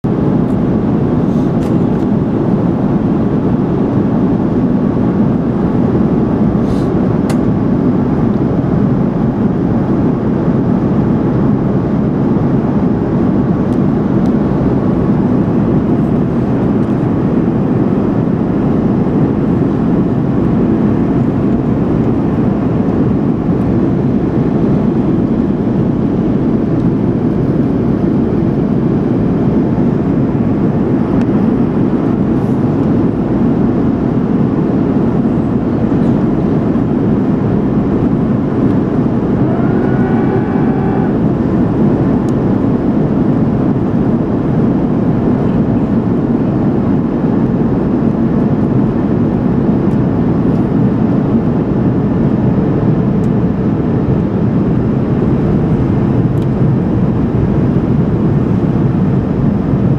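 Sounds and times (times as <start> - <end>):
airplane cabin engine rush: 0.0 - 59.9.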